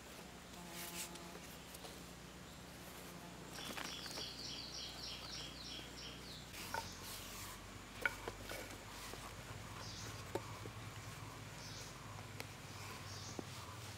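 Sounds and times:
bird chirping: 3.5 - 13.9.

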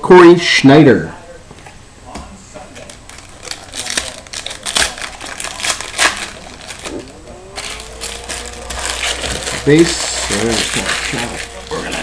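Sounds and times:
cards being handled: 2.2 - 12.0
foil wrappers tearing and crinkling: 2.8 - 12.0.

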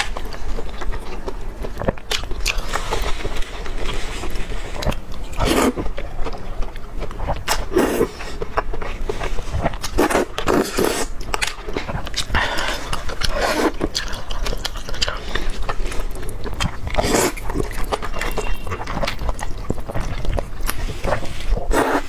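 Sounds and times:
wet chewing: 0.0 - 22.0
slurping noodles: 2.6 - 5.8, 9.1 - 11.1, 12.3 - 16.1, 16.8 - 22.0.

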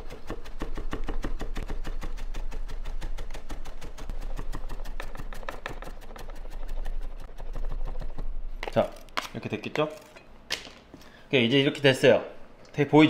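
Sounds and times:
knife chopping on wooden board: 0.0 - 9.4.

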